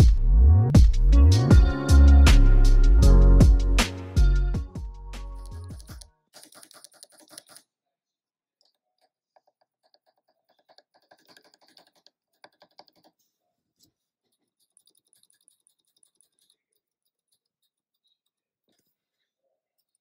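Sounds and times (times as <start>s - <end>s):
mechanical keyboard keys clacking: 5.4s - 7.6s.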